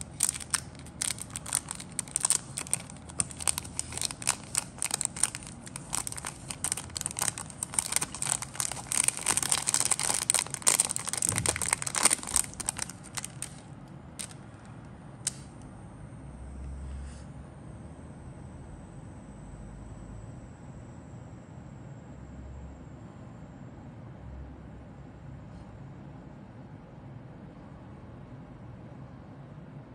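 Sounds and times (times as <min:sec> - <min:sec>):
plastic bag crinkling: 0:00.0 - 0:14.4.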